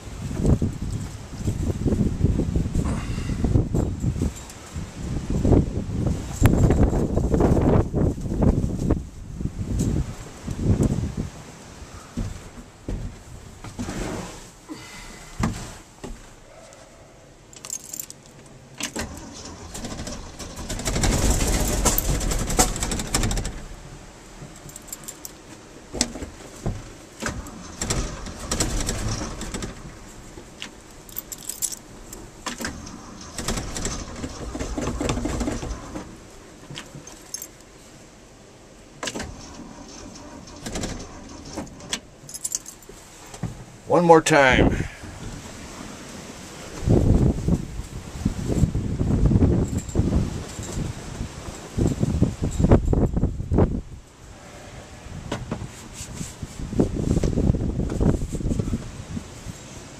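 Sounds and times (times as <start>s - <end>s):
light clicks and rattles: 17.5s - 23.7s, 24.4s - 37.7s, 39.0s - 43.6s
starter cranking engine: 18.9s - 23.6s, 32.5s - 36.2s.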